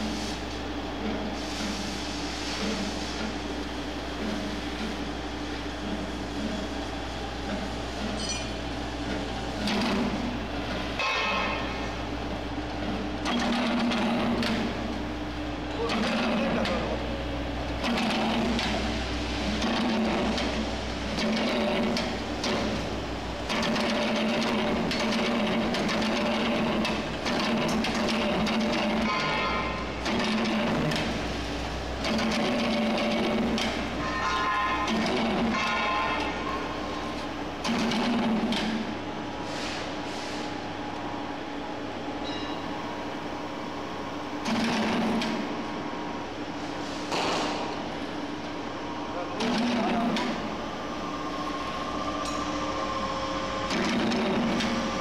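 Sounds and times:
electric motor and gear hum: 0:00.0 - 0:39.4, 0:40.0 - 0:55.0
machine rattling clatter: 0:23.4 - 0:31.1.

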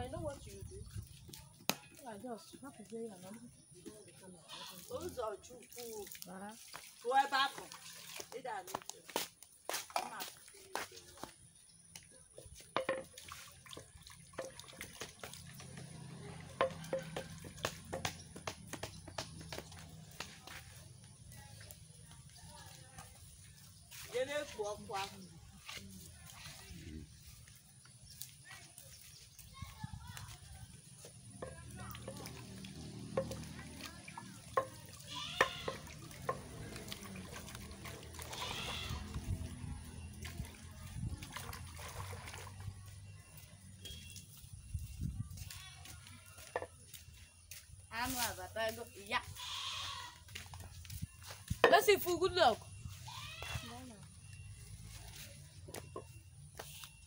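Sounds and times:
water splashing and dripping: 0:00.0 - 0:49.5, 0:50.1 - 0:57.0
clinks and knocks of a pot: 0:12.7 - 0:15.8, 0:16.5 - 0:19.3, 0:33.0 - 0:36.7, 0:46.4 - 0:46.8.

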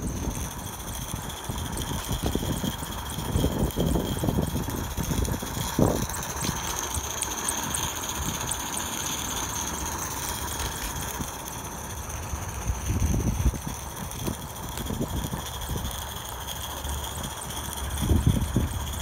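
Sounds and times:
light regular ticking: 0:00.0 - 0:19.0
model steam locomotive running: 0:00.0 - 0:19.0.

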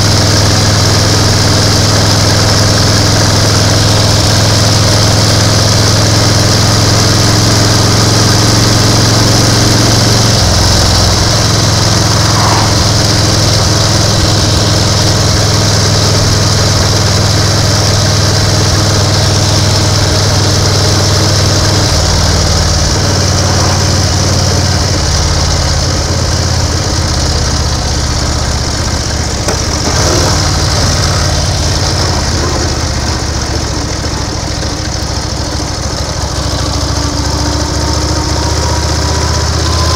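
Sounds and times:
motorcycle engine running: 0:00.0 - 0:39.9
wind and road noise hiss: 0:10.4 - 0:15.5.

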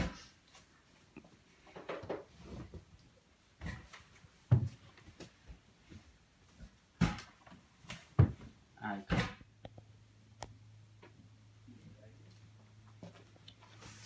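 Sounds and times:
knocks and rustling: 0:03.5 - 0:09.5.

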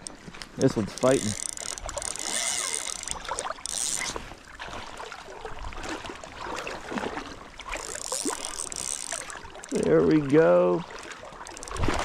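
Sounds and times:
fishing reel being cranked: 0:00.0 - 0:04.3, 0:07.7 - 0:10.3, 0:11.4 - 0:12.0
river water lapping: 0:00.0 - 0:12.0.

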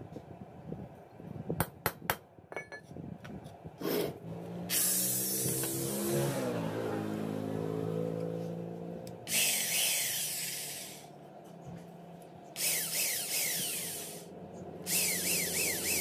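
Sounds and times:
electric drill motor whining: 0:04.7 - 0:06.4, 0:09.3 - 0:11.1, 0:12.6 - 0:16.0
drill bit hissing through metal: 0:09.3 - 0:11.1, 0:12.6 - 0:14.3, 0:14.9 - 0:16.0
drill bit squealing on metal: 0:12.6 - 0:14.3, 0:14.9 - 0:16.0.

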